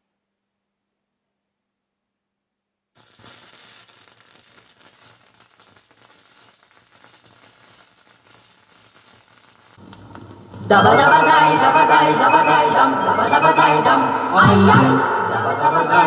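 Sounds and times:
vinyl crackle and hiss: 2.9s - 11.3s
loud record music: 9.9s - 16.0s.

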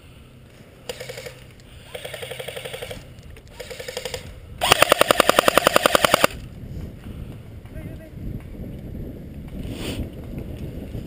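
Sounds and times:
airsoft rifle bursts: 0.8s - 6.4s.

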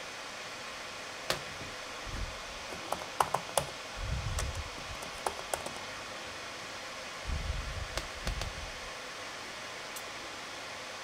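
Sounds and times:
laptop cooling fans whooshing: 0.0s - 11.0s
sharp clicks: 7.9s - 8.5s.

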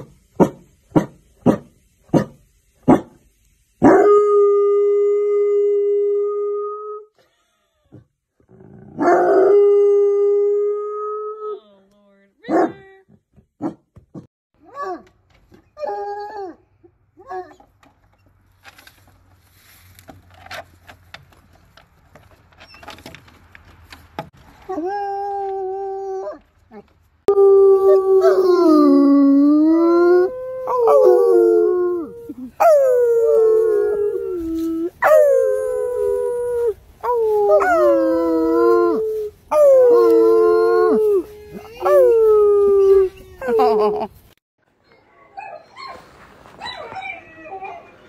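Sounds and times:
faint clicks and rustles: 17.6s - 25.7s
dog howling: 27.3s - 43.5s.

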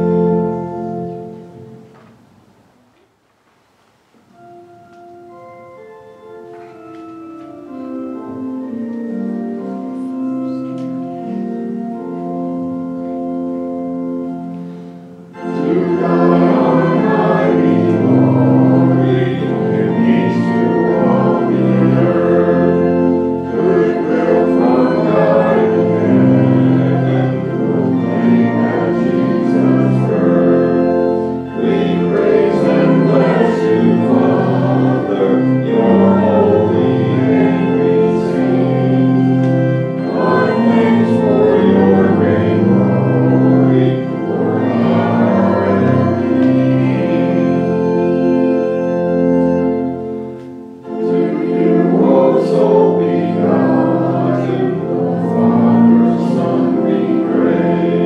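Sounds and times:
congregation singing a hymn: 0.0s - 2.2s, 4.4s - 58.0s
organ: 0.0s - 58.0s.

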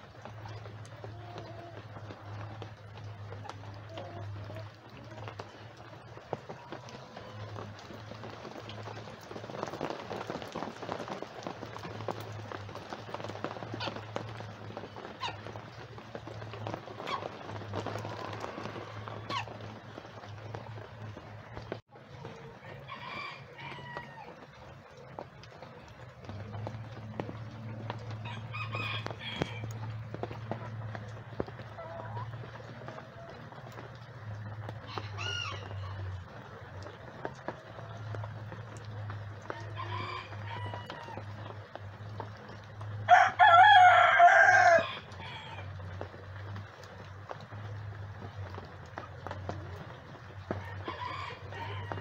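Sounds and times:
rain pattering on tarp: 0.0s - 52.0s
chickens calling: 0.2s - 46.2s
chickens squeaky calls: 16.2s - 19.8s, 28.2s - 29.7s, 34.6s - 36.1s.

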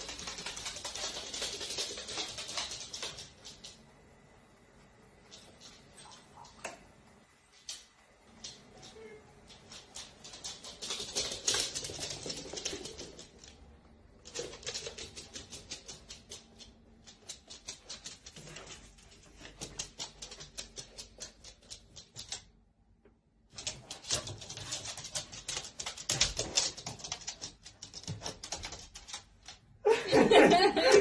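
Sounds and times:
dog claws clicking on wood floor: 0.0s - 3.8s, 9.5s - 22.6s, 23.5s - 29.6s.

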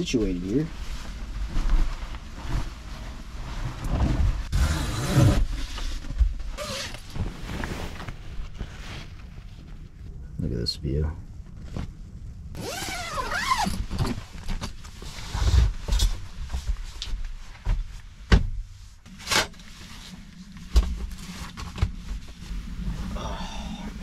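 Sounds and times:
zipper rasp: 4.0s - 5.6s, 12.6s - 13.8s.

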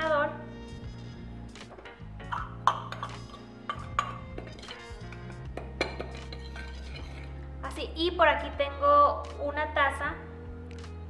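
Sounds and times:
background music: 0.0s - 11.0s
steel bowl clinking on glass bowl: 2.7s - 7.4s.

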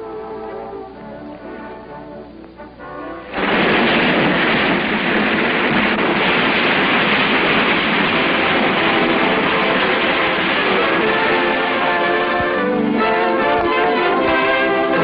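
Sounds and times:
water rushing: 3.3s - 15.0s.

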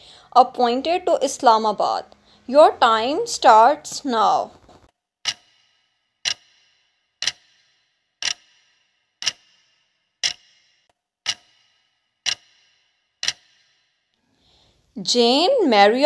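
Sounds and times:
clock ticking with brief ring: 5.2s - 13.8s.

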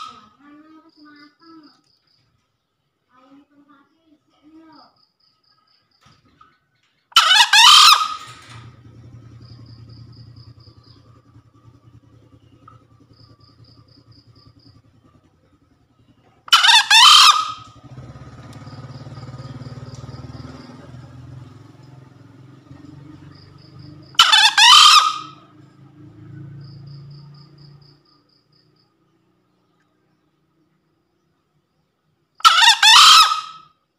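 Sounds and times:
high insect chirps: 0.0s - 6.8s, 8.2s - 16.4s, 17.6s - 32.4s
faint low hum: 8.2s - 16.5s.

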